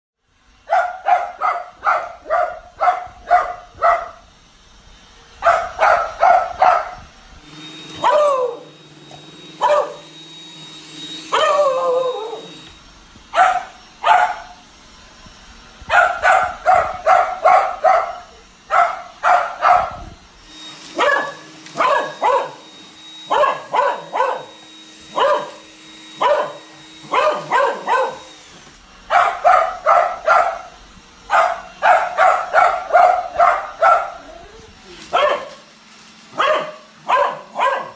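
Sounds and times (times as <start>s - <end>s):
dog barking: 0.7s - 4.2s, 5.4s - 7.0s, 8.0s - 8.6s, 9.6s - 10.1s, 11.3s - 12.5s, 13.3s - 14.6s, 15.9s - 20.0s, 21.0s - 22.6s, 23.3s - 24.5s, 25.1s - 25.6s, 26.2s - 28.3s, 29.1s - 30.7s, 31.3s - 34.3s, 35.1s - 35.7s, 36.3s - 37.9s
robot vacuum motor hum: 6.5s - 29.1s
dog whining: 7.9s - 10.2s, 11.1s - 12.8s, 21.0s - 22.6s, 26.2s - 28.3s, 31.4s - 35.6s.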